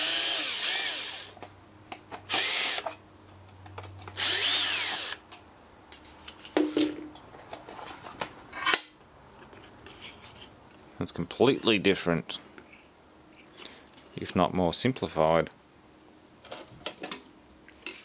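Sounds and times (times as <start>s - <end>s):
cordless drill motor whining: 0.0s - 1.3s, 2.3s - 2.8s, 4.2s - 5.2s.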